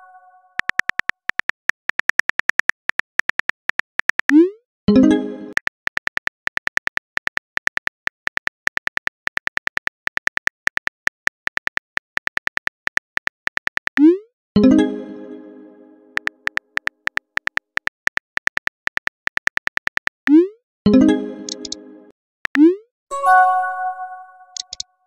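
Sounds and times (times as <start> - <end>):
phone keyboard typing clicks: 0.6 - 4.4, 5.5 - 14.1, 16.2 - 20.2, 21.5 - 21.8, 24.6 - 24.9
short chime: 23.1 - 24.6.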